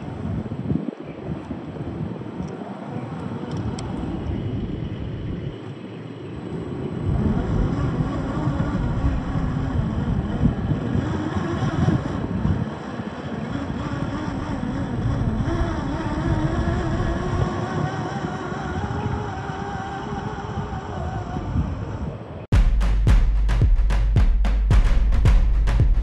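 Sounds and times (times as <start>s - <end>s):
tyres rumbling on rough ground: 6.6s - 21.4s
toy car motor whine: 7.1s - 21.4s.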